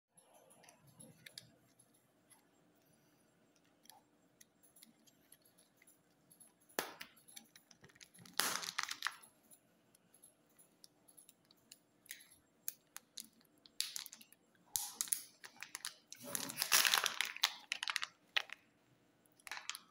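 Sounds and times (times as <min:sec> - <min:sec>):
plastic wrapper crinkling: 0:07.6 - 0:09.2, 0:12.9 - 0:18.7, 0:19.4 - 0:19.9.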